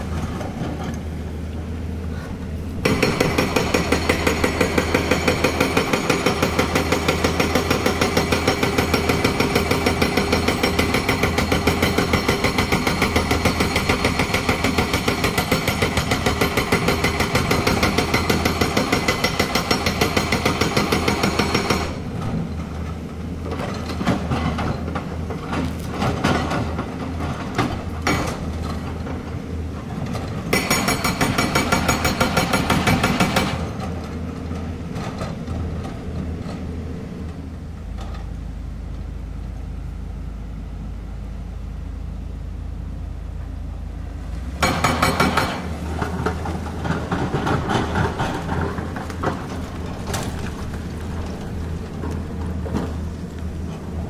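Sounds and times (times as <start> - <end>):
hydraulic rock breaker hammering: 2.8 - 22.5, 25.8 - 29.2, 30.4 - 34.0, 44.5 - 52.9
diesel engine running: 33.4 - 54.0
rocks knocking: 46.0 - 53.6.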